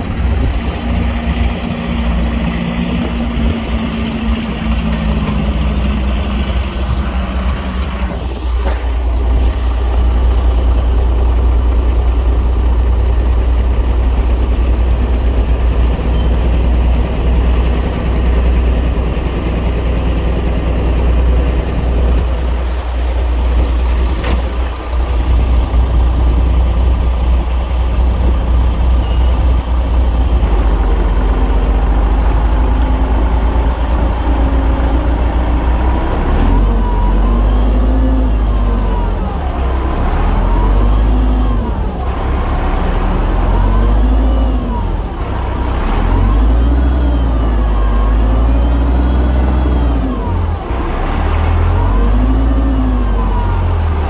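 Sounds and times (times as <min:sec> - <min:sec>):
heavy diesel engine rumbling: 0:00.0 - 0:54.0.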